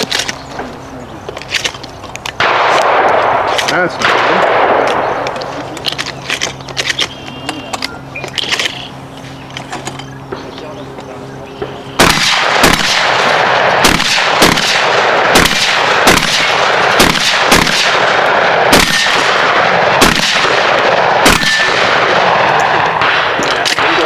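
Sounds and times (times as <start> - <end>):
shotgun shots: 2.4 - 5.4, 11.6 - 24.0.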